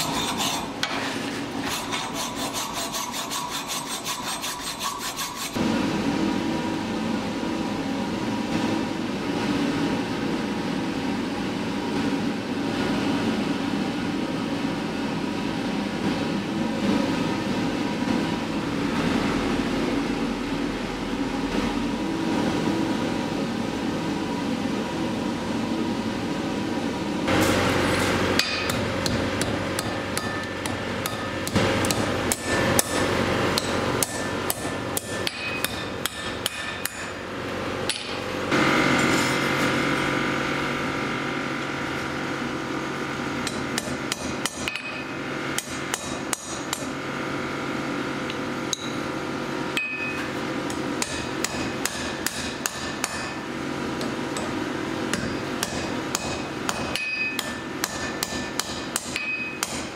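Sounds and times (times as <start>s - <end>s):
steady background hum: 0.0s - 59.9s
hammer striking steel on anvil: 27.3s - 37.2s, 37.9s - 38.2s, 43.4s - 46.9s, 48.7s - 49.1s, 49.8s - 53.4s, 54.0s - 59.9s.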